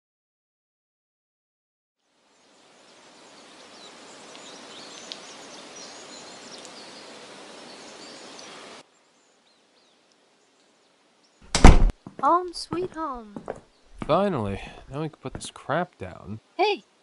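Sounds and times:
steady rustling hiss: 2.0s - 11.5s
small birds chirping: 2.3s - 17.0s.

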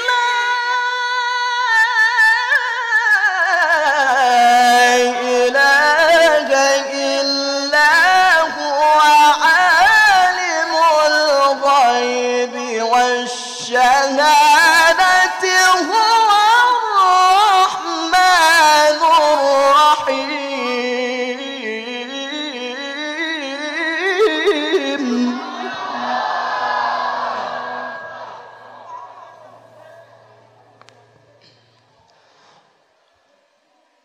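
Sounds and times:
man chanting into a microphone: 0.0s - 26.1s.

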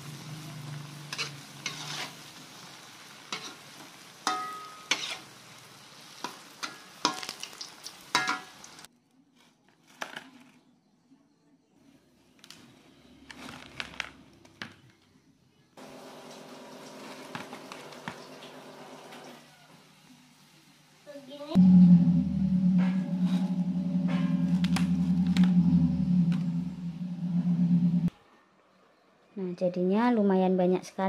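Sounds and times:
food sizzling in hot oil: 0.0s - 8.9s
metal spatula scraping a pan: 1.1s - 2.4s, 3.3s - 5.4s.

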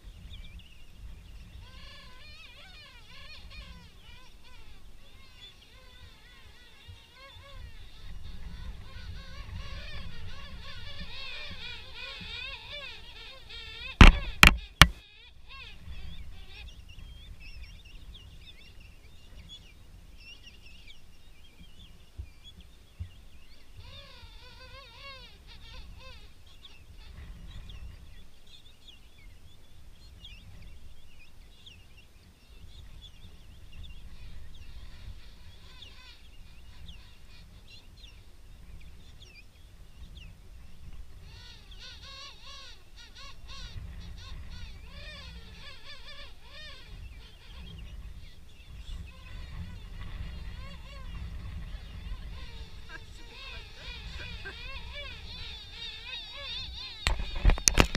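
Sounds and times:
penguin colony calling: 1.6s - 16.7s, 49.0s - 57.9s
sharp knocks near microphone: 14.0s - 15.0s, 57.0s - 57.9s
near penguin warbling call: 49.0s - 57.9s.

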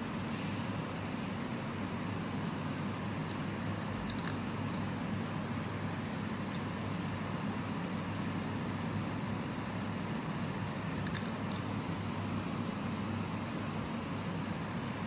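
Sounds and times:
steady low hum: 0.0s - 15.0s
metal bracelet clinking on glass: 2.3s - 4.9s, 10.7s - 11.7s.

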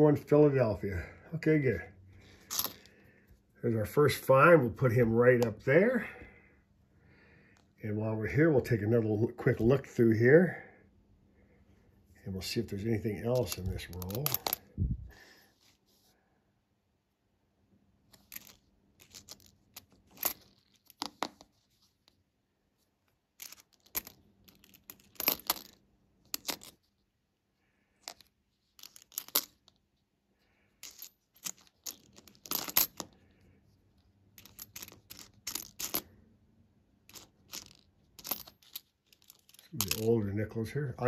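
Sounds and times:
coins clicking together: 28.8s - 29.7s, 30.8s - 33.1s, 34.4s - 36.1s, 37.1s - 40.1s.

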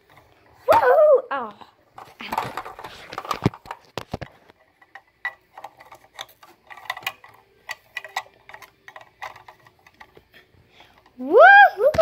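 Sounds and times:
toy swing clicking on pivots: 4.9s - 10.2s.

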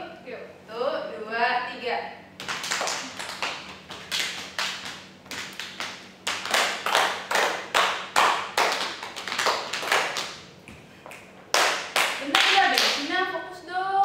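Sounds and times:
people clapping hands rhythmically: 2.4s - 13.1s.

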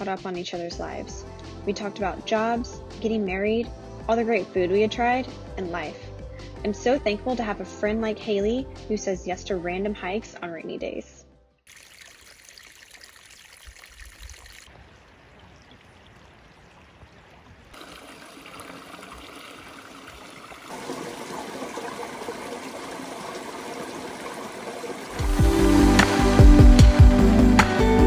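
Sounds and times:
music: 0.0s - 11.6s, 25.2s - 28.0s
stream trickling over rocks: 11.7s - 25.4s.

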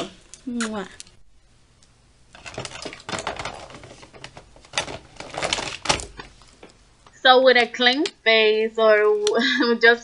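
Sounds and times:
handling noise clicks and rustling: 2.3s - 7.2s.

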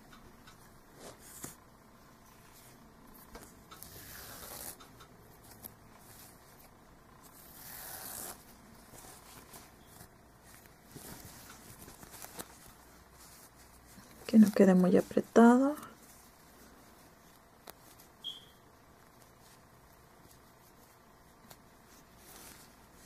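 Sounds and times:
yarn hat rubbing and rustling: 0.6s - 23.0s
thread rasping through stitches: 3.1s - 9.2s.

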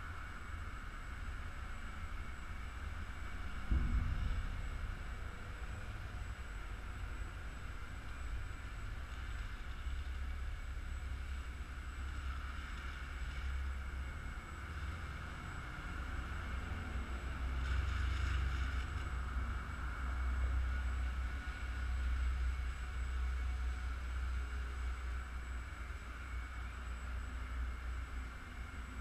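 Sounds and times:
wind rumble on microphone: 0.0s - 22.5s.

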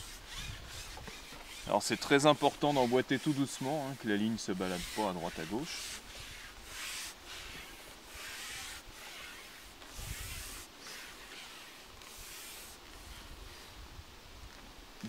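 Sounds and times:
fishing pole sliding through hands: 0.0s - 13.7s.

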